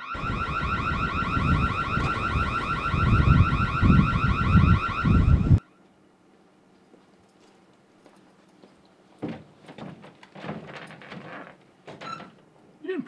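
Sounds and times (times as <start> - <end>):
warbling door alarm: 0.0 - 5.8.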